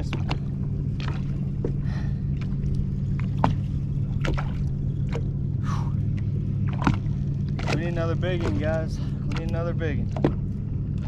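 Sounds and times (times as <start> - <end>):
steady low hum: 0.0 - 11.0
water lapping against boat hull: 0.0 - 11.0
water splash: 3.2 - 5.3, 6.6 - 10.4.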